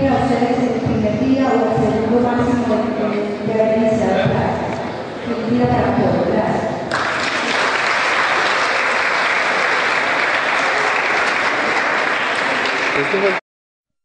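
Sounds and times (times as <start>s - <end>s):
audience applauding: 6.9s - 13.4s.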